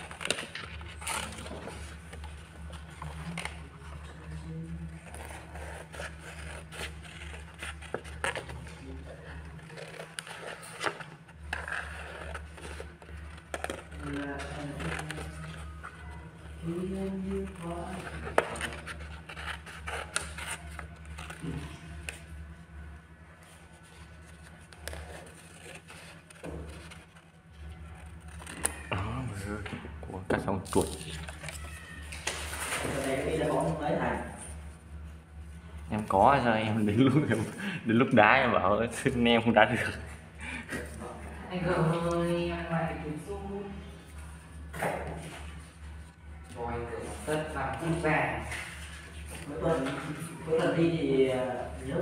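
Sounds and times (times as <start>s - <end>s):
paper rustling: 0.0s - 4.3s, 4.9s - 28.9s, 30.6s - 34.9s, 43.9s - 52.0s
scissors cutting paper: 0.0s - 4.3s, 4.9s - 16.2s, 17.3s - 22.3s, 24.2s - 28.9s
low pulsing hum: 0.0s - 52.0s
scissors snipping paper: 17.4s - 22.3s.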